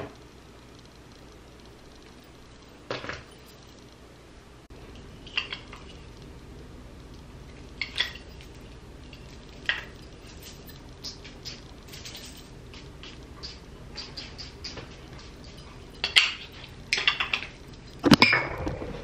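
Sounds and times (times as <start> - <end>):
low background hum: 0.0 - 19.0
dishes clinking: 15.2 - 18.7.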